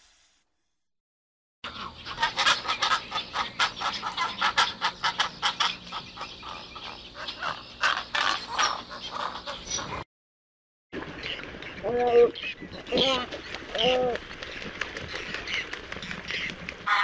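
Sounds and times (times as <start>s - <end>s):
bird calls: 1.6s - 10.0s, 11.0s - 17.0s.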